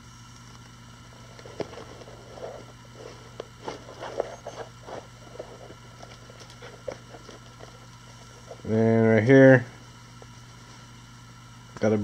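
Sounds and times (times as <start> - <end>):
low steady hum: 0.0 - 12.0
soft rustles of handling: 0.6 - 8.7.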